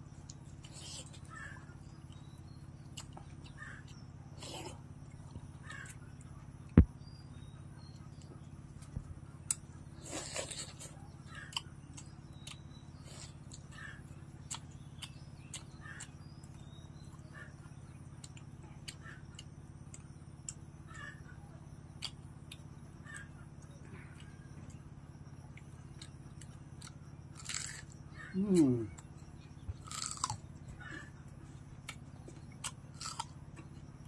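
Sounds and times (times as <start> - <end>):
crunchy clicks of fried chicken: 0.2 - 21.2, 21.8 - 34.0
chewing and lip smacks: 2.9 - 6.3, 8.1 - 17.2, 22.0 - 24.8, 28.6 - 34.0.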